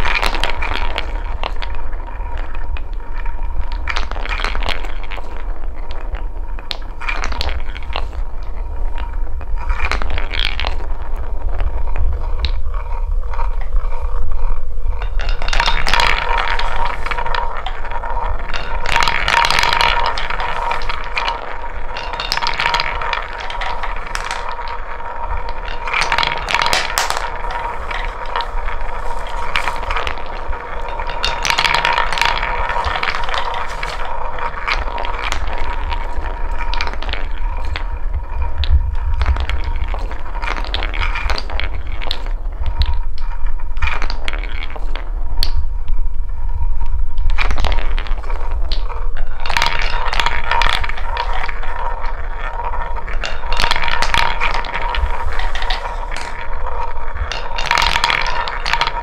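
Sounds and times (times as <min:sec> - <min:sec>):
wooden balls clicking together: 0:00.0 - 0:59.0
wooden balls rolling in a bowl: 0:00.0 - 0:59.0.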